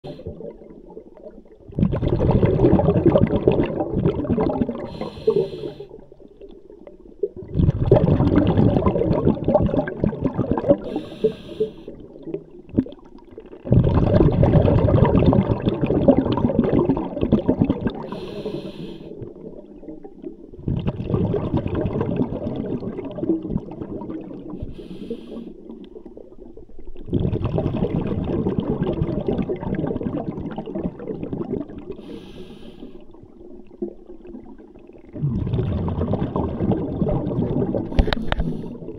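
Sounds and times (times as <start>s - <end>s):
exhaled bubbles rushing: 0.0s - 32.2s, 32.9s - 38.9s
regulator inhale hiss: 4.9s - 6.0s, 10.8s - 12.0s, 18.1s - 19.2s, 24.6s - 25.6s, 32.0s - 33.2s, 37.9s - 38.8s.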